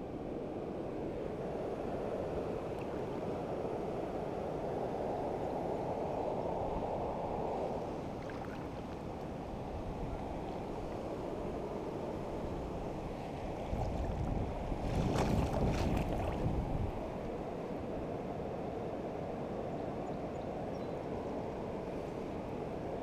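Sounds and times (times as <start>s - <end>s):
hands splashing in water: 14.8s - 16.4s.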